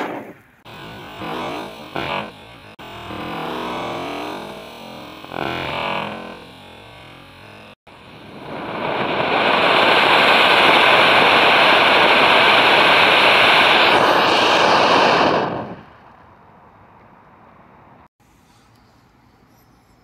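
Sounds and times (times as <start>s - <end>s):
firework fountain hissing: 7.9s - 16.1s.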